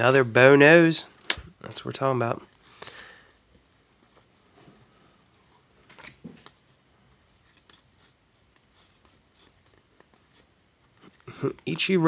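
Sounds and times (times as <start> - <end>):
cards flicking and rustling: 5.7 - 12.0.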